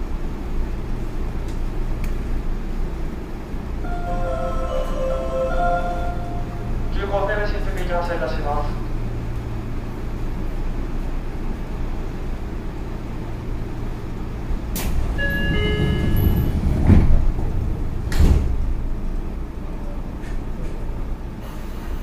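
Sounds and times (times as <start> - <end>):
train low hum: 0.0 - 22.0
multi-tone chime: 3.9 - 6.8
train doors thumping shut: 14.6 - 19.2.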